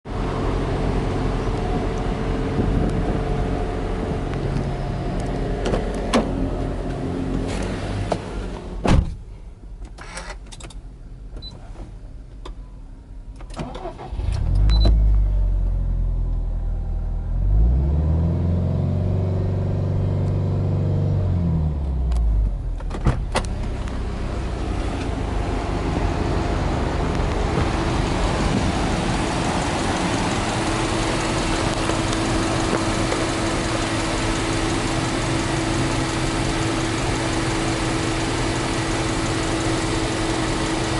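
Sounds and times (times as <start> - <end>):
car engine starting and idling: 0.1 - 40.9
car door thud: 8.1 - 9.2.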